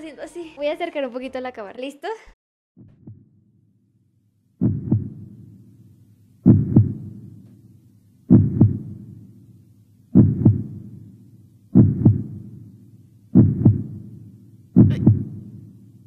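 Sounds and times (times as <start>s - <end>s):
heartbeat thumps: 2.8s - 3.3s, 4.6s - 5.7s, 6.4s - 7.5s, 8.3s - 9.3s, 10.1s - 11.1s, 11.7s - 12.6s, 13.3s - 14.2s, 14.8s - 15.8s.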